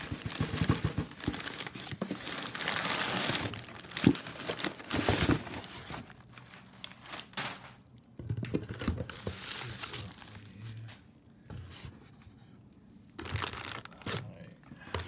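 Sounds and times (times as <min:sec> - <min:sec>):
sharp loud paper crackle: 0:00.0 - 0:07.9, 0:13.2 - 0:14.2
packing paper crinkling: 0:00.0 - 0:08.0, 0:08.8 - 0:11.2, 0:13.1 - 0:15.0.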